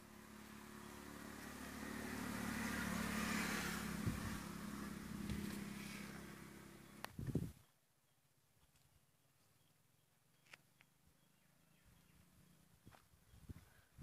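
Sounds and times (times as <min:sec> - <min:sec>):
vehicle engine passing by: 0:00.0 - 0:07.1.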